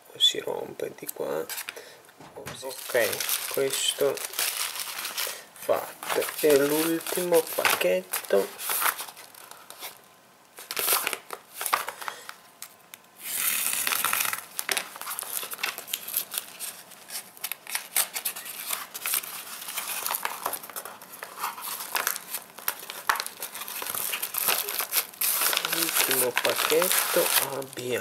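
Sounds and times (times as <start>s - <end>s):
paper crinkling and crackling: 1.4s - 10.0s, 10.6s - 12.7s, 13.7s - 28.0s
padded mailer ripping open: 13.2s - 27.9s.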